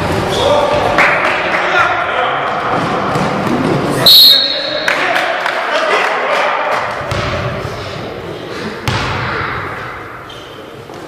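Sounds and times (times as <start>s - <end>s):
indistinct gym noise: 0.0s - 11.0s
basketball bouncing on gym floor: 6.9s - 7.7s, 8.8s - 9.7s.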